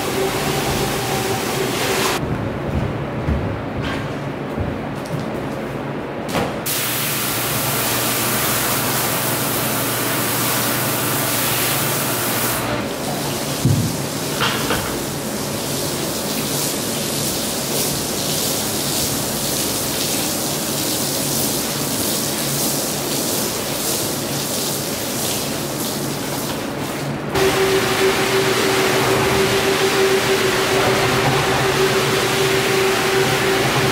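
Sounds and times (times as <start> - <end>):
low machine hum: 0.0 - 6.2, 27.2 - 33.9
water pouring and splashing on rug: 6.7 - 33.9.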